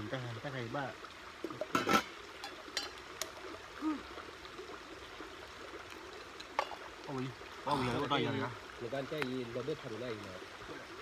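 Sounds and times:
running water: 0.0 - 11.0
metal pots clinking: 1.5 - 3.0, 6.5 - 6.8.

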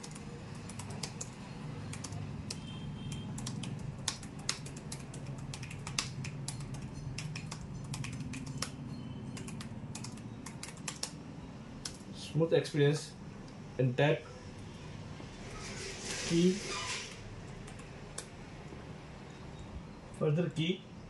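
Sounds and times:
fast typing on laptop keyboard: 0.0 - 11.2, 11.8 - 12.0, 17.6 - 18.3.

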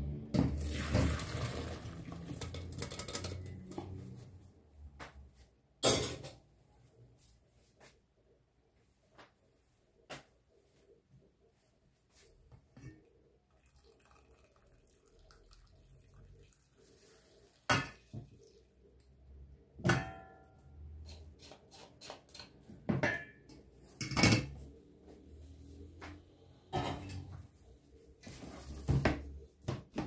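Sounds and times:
kitchenware clanking: 2.2 - 4.0, 5.8 - 6.4, 19.8 - 20.6, 22.8 - 24.7, 26.7 - 27.5.

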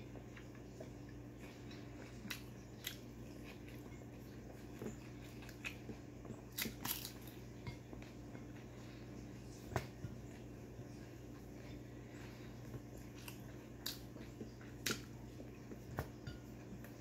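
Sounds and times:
steady low hum: 0.0 - 17.0
crunchy bites and chewing: 4.6 - 7.4.

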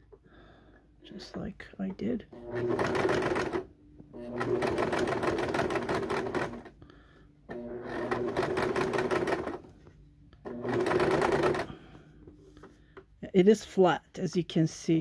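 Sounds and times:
sewing machine stitching: 2.3 - 6.8, 7.5 - 9.7, 10.4 - 11.8.

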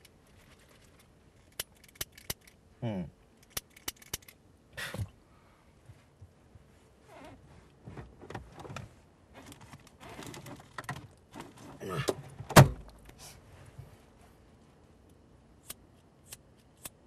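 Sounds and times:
rustling: 0.0 - 2.2.

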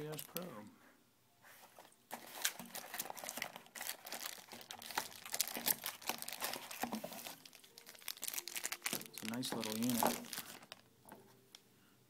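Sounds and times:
plastic bag crinkling: 0.0 - 0.5, 2.1 - 10.9.

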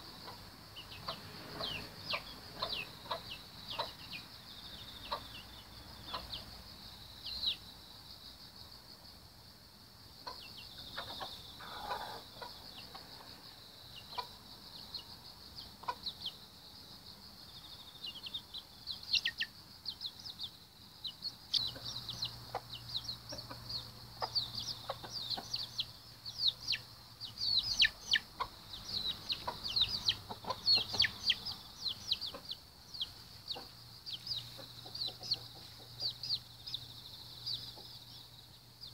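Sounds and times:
hen clucking: 0.0 - 4.2, 5.0 - 6.5, 10.2 - 13.3, 21.5 - 36.4
chicks peeping: 0.0 - 6.6, 10.2 - 16.4, 17.6 - 38.9.

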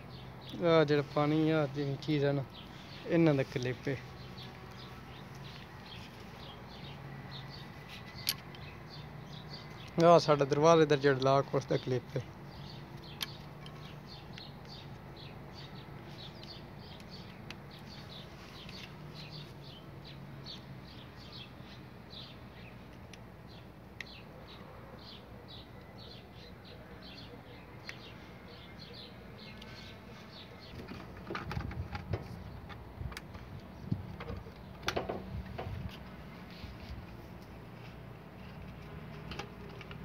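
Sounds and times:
small birds chirping: 0.0 - 40.0
plastic clicks and knocks: 30.8 - 35.7.

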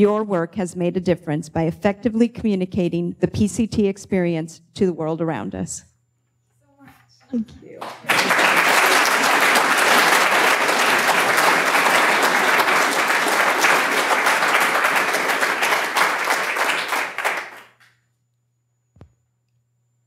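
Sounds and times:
audience applauding: 7.8 - 17.9.

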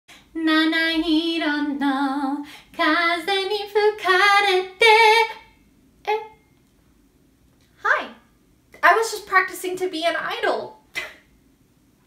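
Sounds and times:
woman singing unaccompanied: 0.3 - 6.4.

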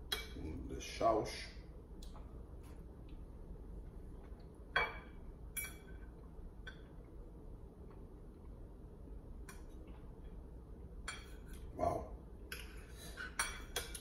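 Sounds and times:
cutlery clinking against a plate: 4.8 - 6.1, 11.0 - 11.7, 12.5 - 14.0.

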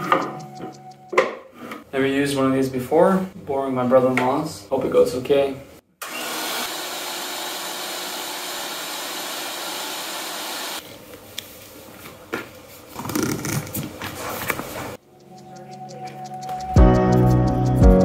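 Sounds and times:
electric pump running: 6.0 - 10.8.

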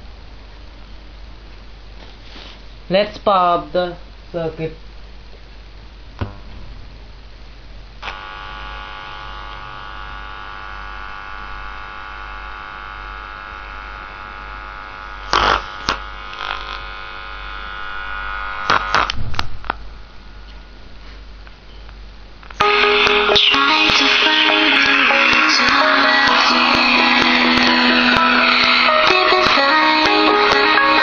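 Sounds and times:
loudspeaker mains hum: 0.0 - 31.0
dense buzz: 6.0 - 20.9, 22.5 - 31.0
loud crackling pops: 18.6 - 19.8.

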